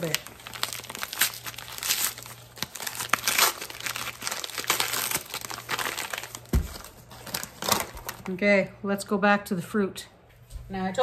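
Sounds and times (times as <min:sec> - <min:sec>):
paper bag crinkling: 0:00.0 - 0:08.4.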